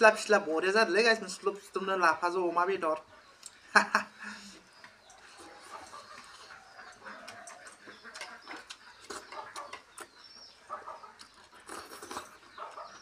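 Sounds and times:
faint fowl calls: 0:04.3 - 0:11.4.

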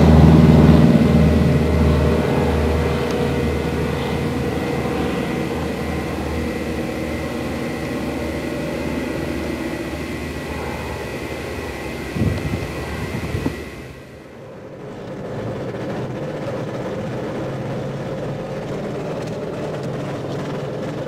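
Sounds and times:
short louder rumble: 0:00.0 - 0:14.4
propeller plane engine drone: 0:00.0 - 0:21.0.

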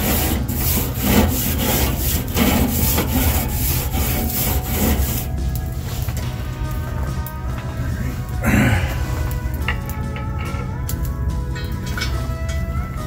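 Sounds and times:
grill brush scraping metal grate: 0:00.0 - 0:06.4.

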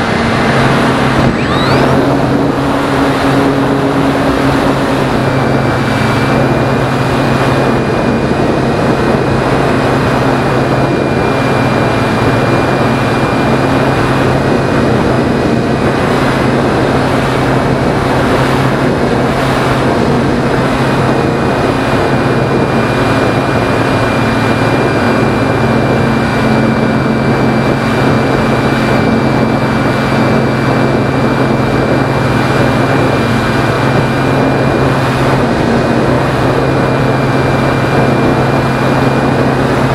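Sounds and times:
airflow rushing: 0:00.0 - 0:39.9
electric motor and propeller whine: 0:00.0 - 0:39.9.

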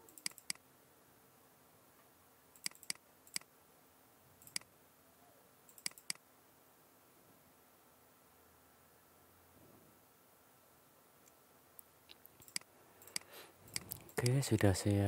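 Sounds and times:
computer mouse clicking: 0:00.0 - 0:00.6, 0:02.6 - 0:03.5, 0:04.4 - 0:04.7, 0:05.7 - 0:06.2, 0:12.1 - 0:14.7
faint room hiss: 0:00.0 - 0:15.0.

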